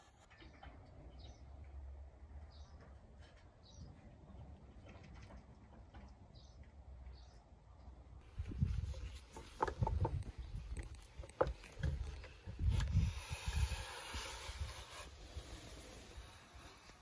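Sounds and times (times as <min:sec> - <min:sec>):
wooden clicks and knocks: 0:08.9 - 0:12.4.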